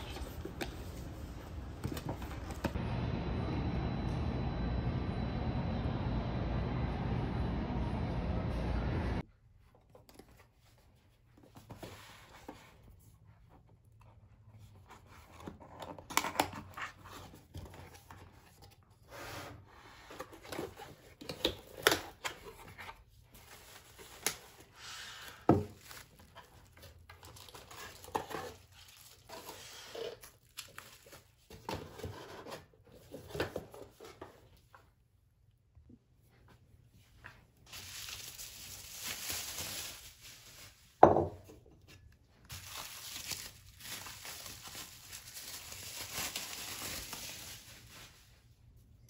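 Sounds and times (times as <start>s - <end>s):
plastic wrap crinkling: 25.7s - 29.5s, 37.6s - 41.0s, 42.5s - 48.4s.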